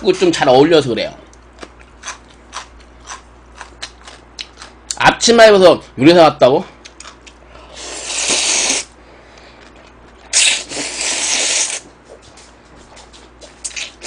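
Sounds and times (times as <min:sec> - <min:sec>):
person slurping noodles: 0:07.7 - 0:08.9, 0:10.3 - 0:11.8.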